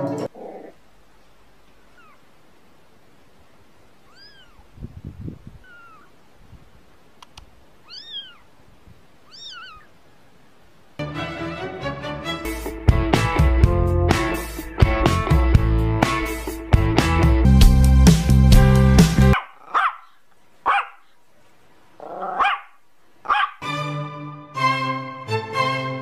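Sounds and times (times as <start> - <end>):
music: 0.0 - 0.3, 11.0 - 19.4, 23.6 - 26.0
kitten mewing: 1.8 - 2.2, 4.0 - 4.7, 5.6 - 6.1, 7.8 - 8.5, 9.2 - 9.9.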